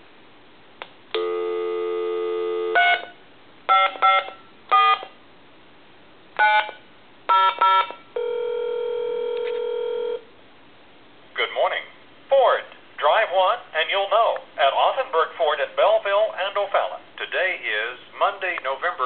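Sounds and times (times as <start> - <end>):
dial tone: 1.2 - 3.1, 7.4 - 10.2.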